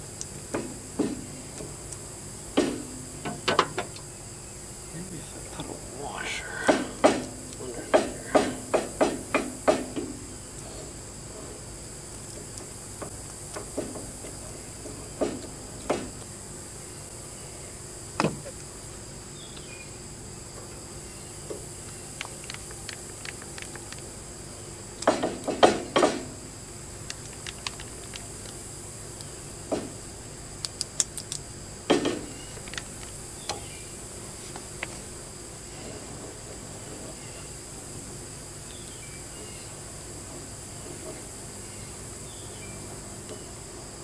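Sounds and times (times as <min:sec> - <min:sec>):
high-pitched insect drone: 0:02.8 - 0:11.9.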